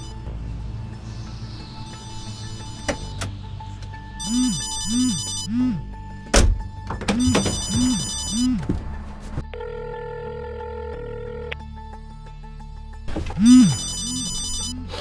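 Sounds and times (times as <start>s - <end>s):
steady low tone: 0.0s - 6.2s
phone ringtone chirps: 4.2s - 5.8s, 7.2s - 8.6s, 13.4s - 15.0s.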